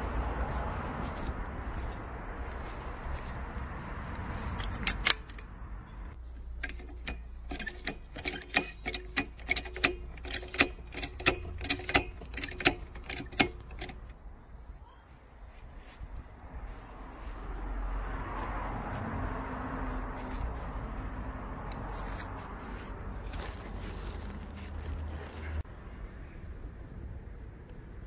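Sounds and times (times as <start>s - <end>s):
floor jack pumping clicks: 6.6s - 14.1s.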